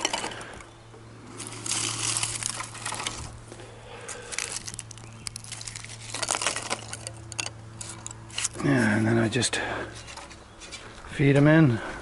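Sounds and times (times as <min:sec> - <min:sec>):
kindling sticks rustling and clicking: 0:00.0 - 0:00.7, 0:01.3 - 0:08.6.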